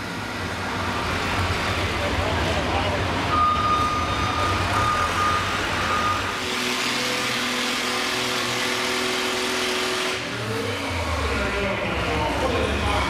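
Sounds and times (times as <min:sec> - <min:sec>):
high beep: 0:03.3 - 0:06.3.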